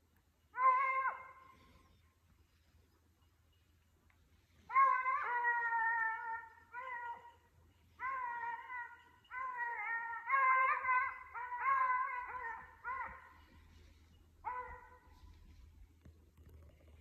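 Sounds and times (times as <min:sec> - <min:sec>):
hounds baying: 0:00.6 - 0:02.7, 0:04.4 - 0:15.8.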